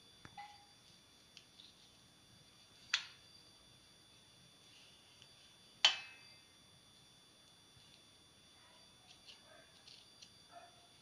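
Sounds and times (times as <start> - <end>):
taps on a steel plate: 5.8 - 6.2.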